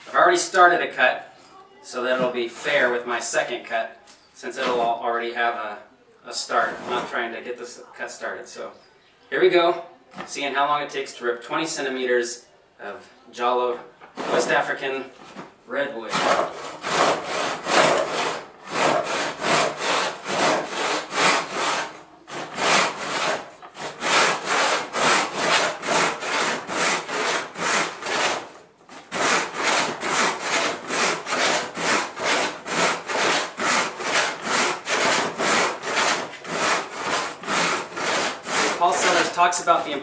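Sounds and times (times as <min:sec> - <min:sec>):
hand saw rasping through wood: 0:02.1 - 0:03.0, 0:06.6 - 0:07.2, 0:14.2 - 0:14.8, 0:16.0 - 0:40.0.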